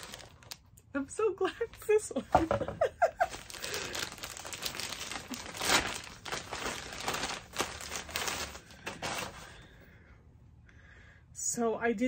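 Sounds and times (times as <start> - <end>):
plastic bag crinkling: 0.0 - 0.7, 3.0 - 9.6.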